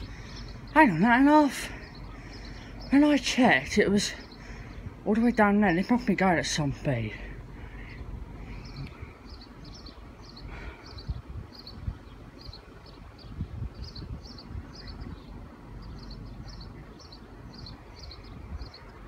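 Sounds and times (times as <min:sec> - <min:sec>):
low uneven rumble: 0:00.0 - 0:19.0
small bird chirping: 0:07.7 - 0:19.0.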